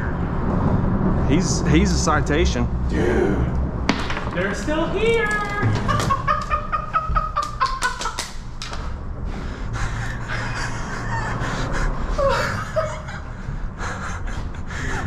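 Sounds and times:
steady low rumble: 0.0 - 15.0
man laughing: 5.6 - 8.3, 9.9 - 15.0
man breathing hard: 8.8 - 12.6, 13.2 - 15.0.

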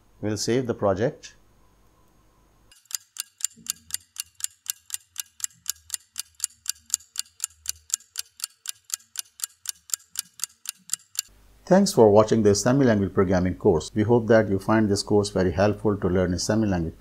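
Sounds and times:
clock-like ticking: 2.7 - 11.3.

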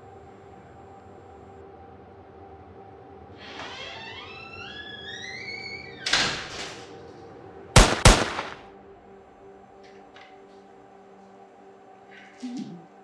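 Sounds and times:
steady low hum: 0.0 - 3.4.

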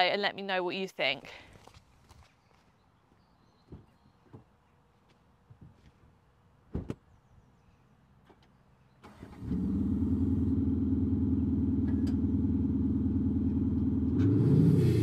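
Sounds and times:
diesel engine starting and idling: 9.0 - 15.0.

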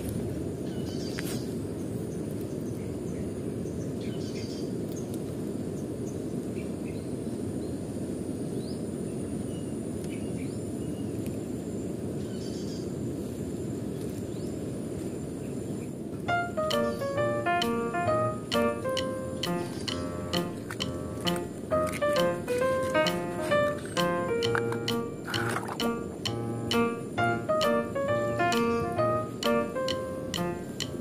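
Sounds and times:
low rushing background noise: 16.2 - 31.0.

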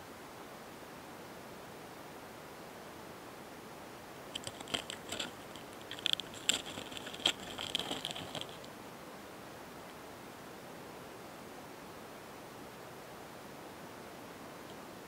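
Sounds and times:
faint hiss: 0.0 - 15.0
beetles clicking and rasping: 4.3 - 8.7.

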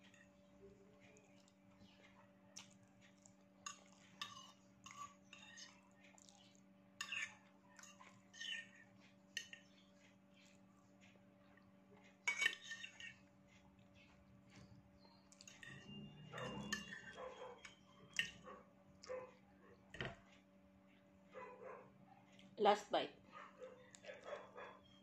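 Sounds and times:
fork scraping ceramic plate: 4.2 - 5.8, 7.0 - 9.6, 12.3 - 13.2, 15.4 - 18.4.

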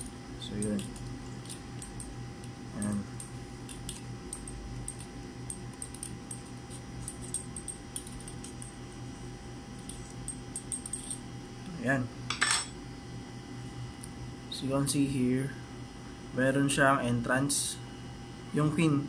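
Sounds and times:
metal clinking against glass tube: 9.8 - 11.2.

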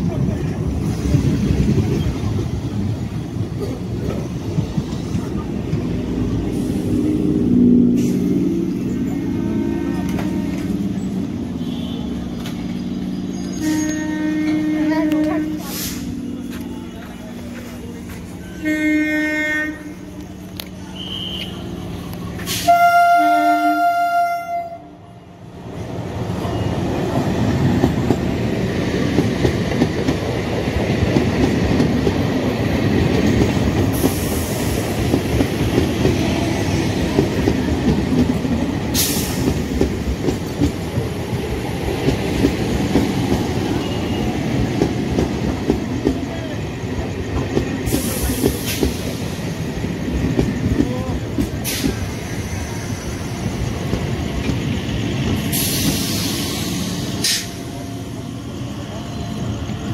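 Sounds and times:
electric train rumbling past: 0.0 - 59.9
train horn: 9.3 - 10.8, 11.6 - 12.2, 13.5 - 16.1, 18.4 - 20.1, 21.0 - 21.7, 22.5 - 25.0
short high hisses: 15.6 - 16.2
wheels clacking over rail joints: 27.1 - 49.2.

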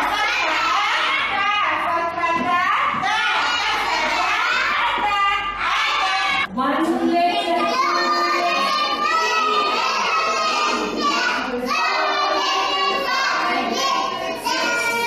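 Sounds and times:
children singing in unison: 3.0 - 4.9, 7.6 - 15.0.

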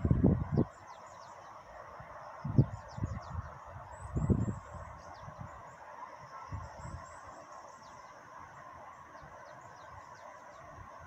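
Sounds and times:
wind gusting on microphone: 0.0 - 0.9, 1.9 - 5.7, 6.3 - 7.2.

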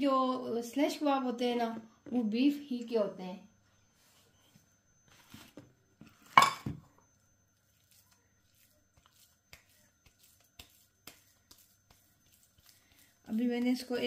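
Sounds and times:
dishes clattering with a ring: 6.2 - 6.8
dishes and utensils clinking: 6.3 - 6.8.

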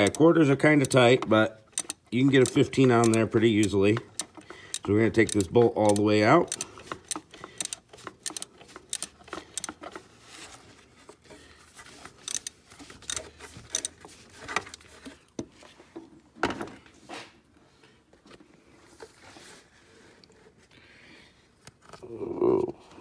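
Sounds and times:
ratchet clicking: 0.0 - 10.0, 12.2 - 14.0.

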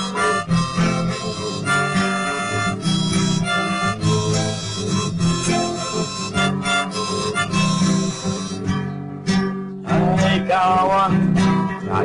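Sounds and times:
harmonica: 0.0 - 9.1
acoustic guitar strumming: 0.0 - 12.0.

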